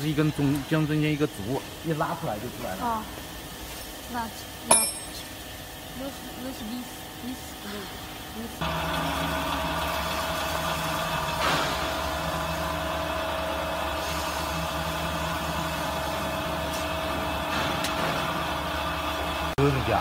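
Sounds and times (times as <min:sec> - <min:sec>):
machine drone with whine: 0:06.0 - 0:20.0.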